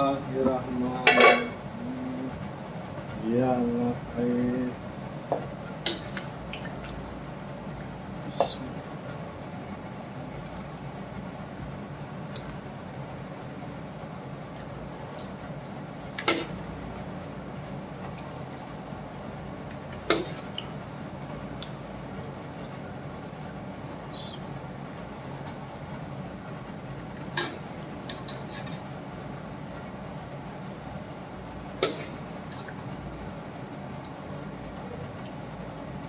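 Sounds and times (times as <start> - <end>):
steady background hum: 0.0 - 36.0
metal ladle clinking on pot: 1.0 - 1.6.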